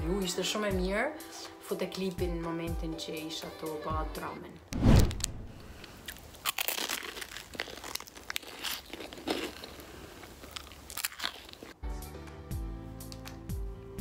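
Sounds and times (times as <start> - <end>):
music: 0.0 - 4.6, 11.8 - 14.0
chocolate bar crunching: 5.9 - 11.8
foil wrapper crackling: 5.9 - 11.8.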